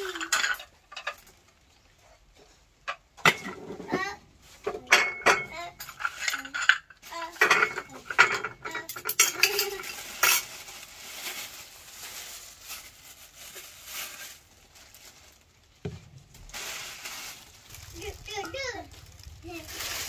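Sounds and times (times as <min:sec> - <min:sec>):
bowls and utensils clinking: 0:00.0 - 0:01.4, 0:02.9 - 0:10.7
plastic bag crinkling: 0:09.2 - 0:20.0.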